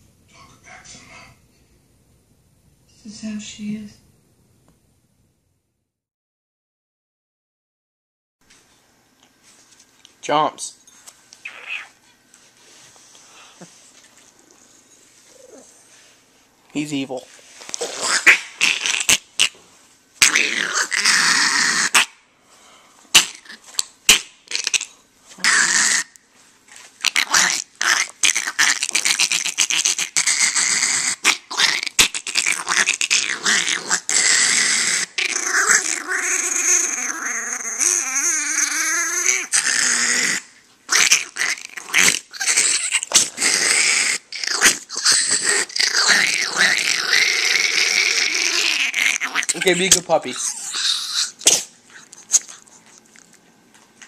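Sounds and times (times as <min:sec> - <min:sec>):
small dog growling: 0:15.3 - 0:15.8, 0:17.8 - 0:19.6, 0:20.2 - 0:22.2, 0:23.2 - 0:53.4.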